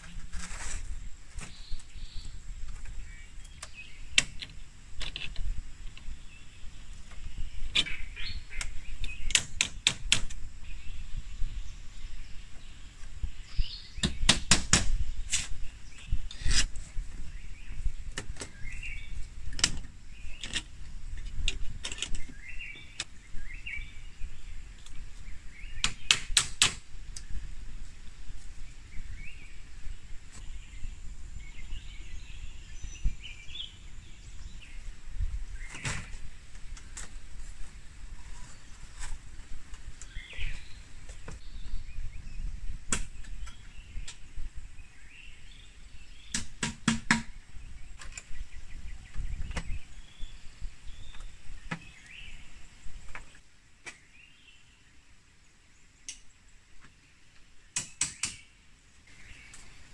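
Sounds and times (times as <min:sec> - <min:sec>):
small birds chirping: 0:00.0 - 0:59.9
tool striking bamboo: 0:14.0 - 0:15.5, 0:25.8 - 0:26.8, 0:46.3 - 0:47.4, 0:57.8 - 0:58.5.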